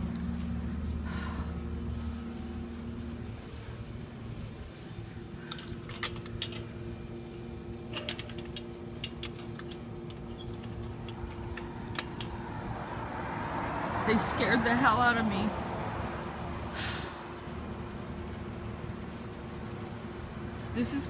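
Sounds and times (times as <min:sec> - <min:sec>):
faint steady hum: 0:00.0 - 0:21.0
passing vehicle rumble: 0:00.0 - 0:21.0.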